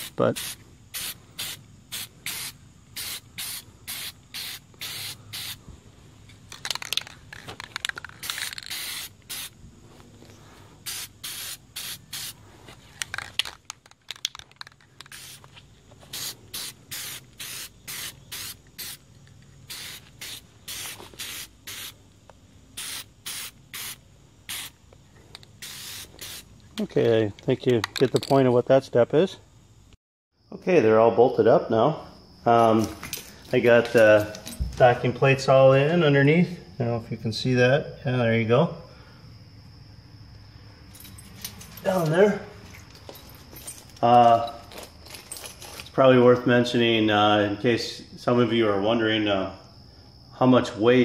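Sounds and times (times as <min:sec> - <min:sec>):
spray paint can hissing: 0:00.0 - 0:05.6, 0:06.5 - 0:09.6, 0:10.8 - 0:12.4, 0:13.0 - 0:19.0, 0:19.6 - 0:22.0, 0:22.8 - 0:24.8, 0:25.4 - 0:26.5.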